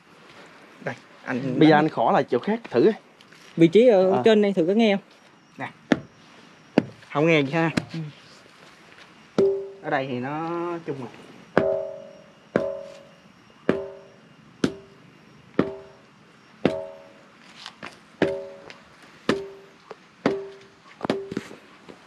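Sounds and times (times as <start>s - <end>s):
stick striking ringing stone: 9.4s - 9.9s, 11.6s - 13.1s, 13.7s - 15.0s, 15.6s - 16.0s, 16.6s - 17.2s, 18.2s - 21.4s.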